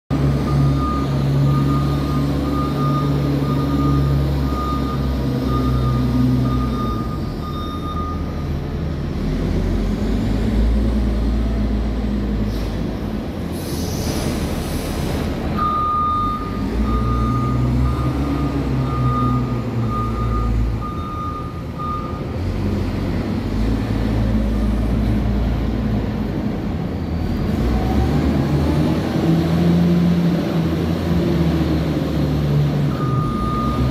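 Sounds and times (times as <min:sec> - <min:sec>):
diesel engine running: 0:00.1 - 0:33.9
reversing alarm beeping: 0:00.4 - 0:08.6, 0:15.6 - 0:22.4, 0:32.9 - 0:33.9.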